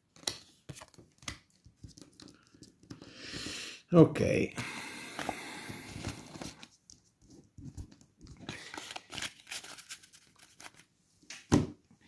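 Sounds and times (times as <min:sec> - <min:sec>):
cards rustling: 0:00.1 - 0:03.0, 0:05.2 - 0:10.9.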